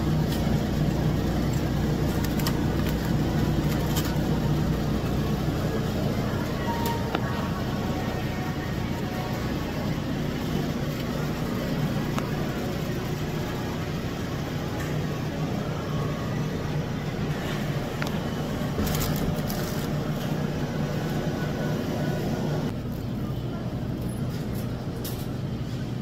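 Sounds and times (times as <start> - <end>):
refrigerator and ventilation hum: 0.0 - 26.0.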